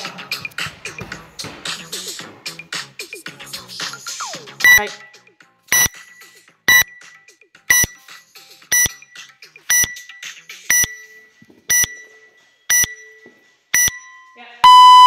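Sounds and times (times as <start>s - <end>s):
short high timer beeps: 4.6s - 5.1s, 5.7s - 6.0s, 6.7s - 7.0s, 7.7s - 8.0s, 8.7s - 9.0s, 9.7s - 10.1s, 10.7s - 11.0s, 11.7s - 12.1s, 12.7s - 13.2s, 13.8s - 15.0s.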